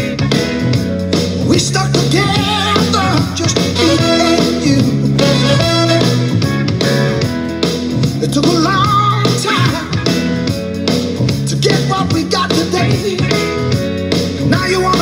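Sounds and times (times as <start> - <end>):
guitar: 0.0 - 15.0
line-dance song: 0.0 - 15.0
steady beat: 0.0 - 15.0
person singing: 1.4 - 6.4, 8.2 - 10.2, 11.4 - 13.8, 14.4 - 15.0.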